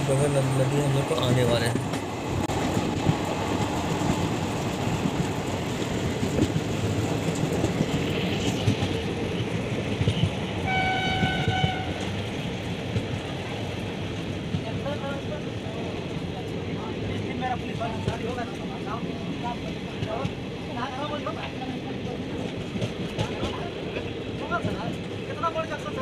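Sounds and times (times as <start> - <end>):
train rumbling: 0.0 - 26.0
train horn: 10.6 - 12.1.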